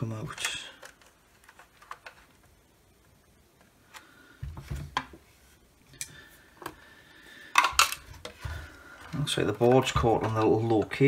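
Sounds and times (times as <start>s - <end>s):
plastic clicks: 0.3s - 4.1s.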